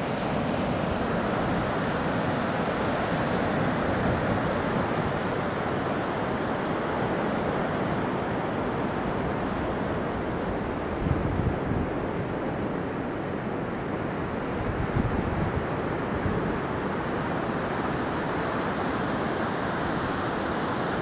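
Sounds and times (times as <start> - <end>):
surf breaking on a beach: 0.0 - 21.0
wind on the microphone: 10.2 - 13.0, 14.3 - 16.8.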